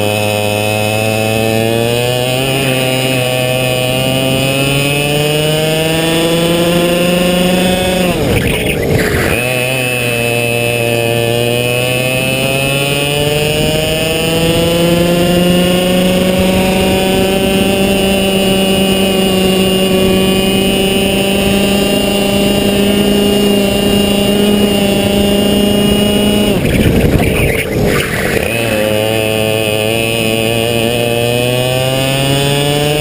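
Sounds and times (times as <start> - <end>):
kart engine at full throttle: 0.0 - 33.0.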